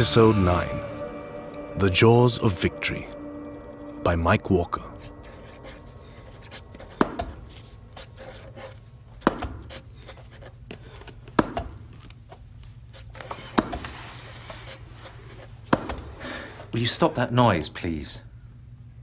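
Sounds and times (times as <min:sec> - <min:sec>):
ball bouncing thuds: 0:06.9 - 0:07.4, 0:09.2 - 0:09.7, 0:13.5 - 0:13.9, 0:15.7 - 0:16.1.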